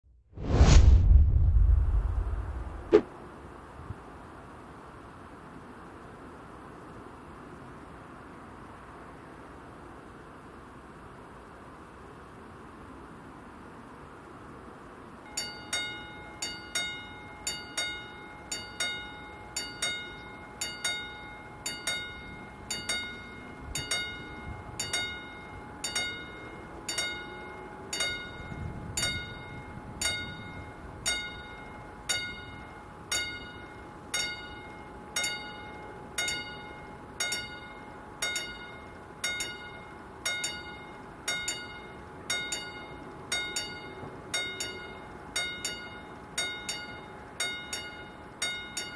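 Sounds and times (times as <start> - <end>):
low rumble: 0.1 - 3.0
faint steady hum: 0.8 - 48.9
level crossing warning bell: 15.2 - 48.9.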